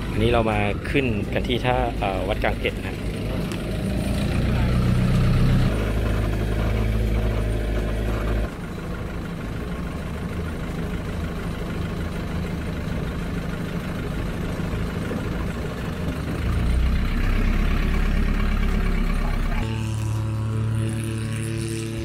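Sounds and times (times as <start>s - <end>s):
boat engine running: 0.0s - 22.0s.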